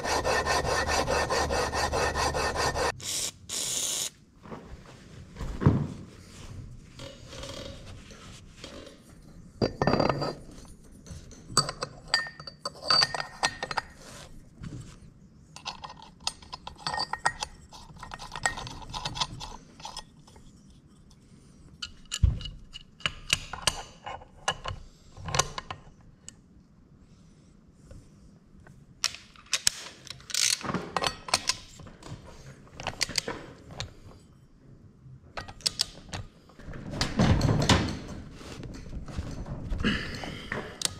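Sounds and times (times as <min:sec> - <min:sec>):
metal tools clinking and scraping: 0:07.0 - 0:14.4, 0:15.6 - 0:21.0.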